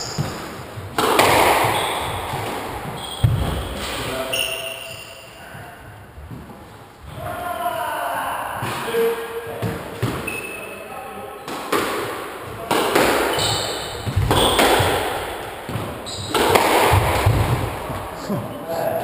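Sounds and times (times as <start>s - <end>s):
shoes squeaking on wooden floor: 0.0s - 7.2s, 12.5s - 19.0s
squash ball knocks: 11.7s - 18.1s.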